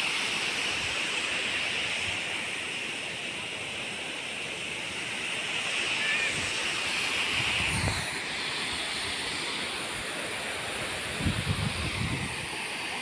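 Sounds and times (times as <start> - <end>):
distant waterfall rushing: 0.0 - 13.0
wind on microphone: 7.3 - 8.1, 11.0 - 12.4.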